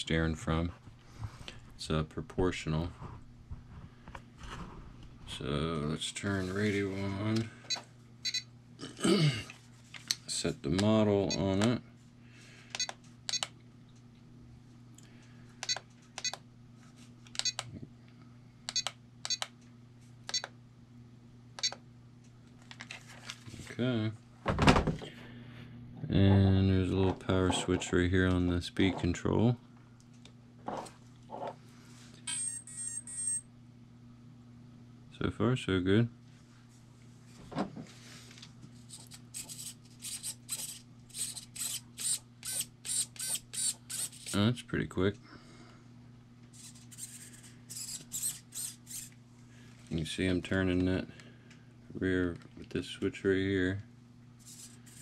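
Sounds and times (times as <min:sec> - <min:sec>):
steady low hum: 0:00.0 - 0:55.0
remote control transmitter beeps: 0:07.7 - 0:08.5, 0:17.4 - 0:17.7, 0:21.6 - 0:21.8
electric motors whirring: 0:38.9 - 0:44.4, 0:46.5 - 0:49.2, 0:54.4 - 0:55.0.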